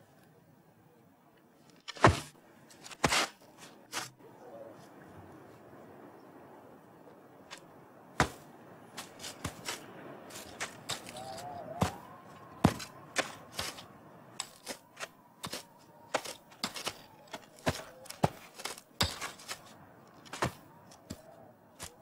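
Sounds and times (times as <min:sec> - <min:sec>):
metal tool digging soil and stones: 0:01.7 - 0:04.1, 0:09.0 - 0:12.0, 0:12.6 - 0:22.0.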